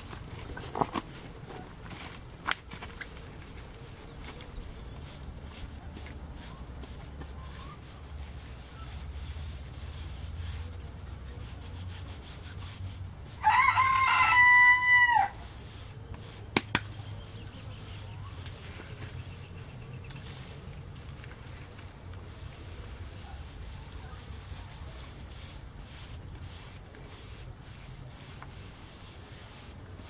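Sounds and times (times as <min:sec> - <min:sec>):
rooster crowing: 0:13.4 - 0:15.4.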